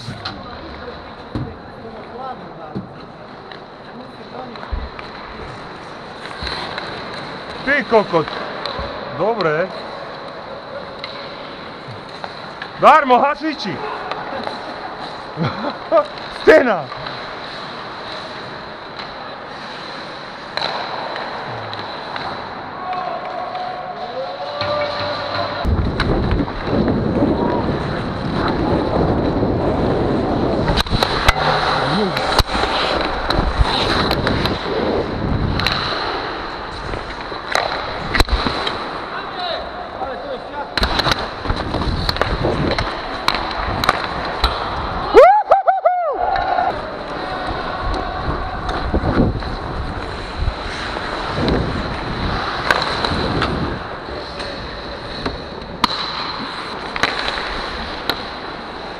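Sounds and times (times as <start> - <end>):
skates scraping on ice: 2.9 - 45.1, 46.3 - 58.9
wind on microphone: 25.7 - 31.1, 48.2 - 52.4.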